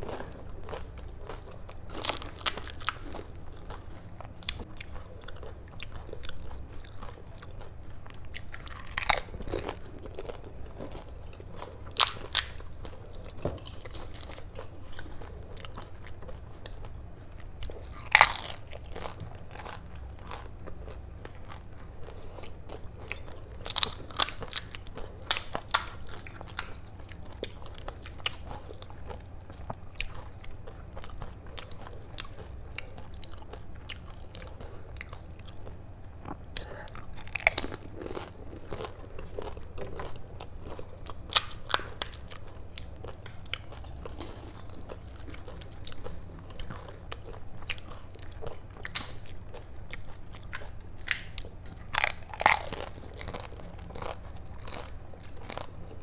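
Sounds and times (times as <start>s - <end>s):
crisp shells crunching: 8.5s - 11.1s, 17.9s - 20.8s, 36.6s - 42.4s, 50.5s - 55.8s.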